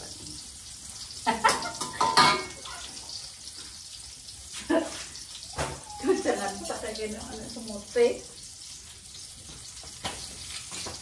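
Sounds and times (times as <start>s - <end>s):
dishes and utensils clattering: 1.3s - 3.2s.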